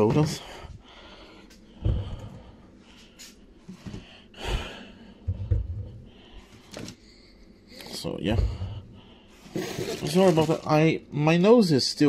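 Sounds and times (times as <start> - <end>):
heavy breathing through nose: 0.3 - 5.4.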